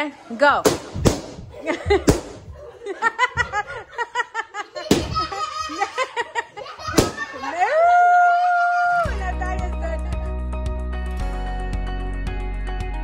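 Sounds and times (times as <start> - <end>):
balloons popping: 0.6 - 2.6, 4.9 - 5.6, 6.8 - 7.4
people laughing: 1.5 - 10.3.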